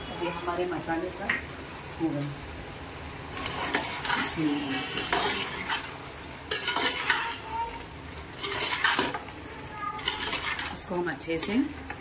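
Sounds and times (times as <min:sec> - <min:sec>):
metal ladle scraping metal pot: 0:03.3 - 0:07.4, 0:08.3 - 0:09.3, 0:10.0 - 0:11.6.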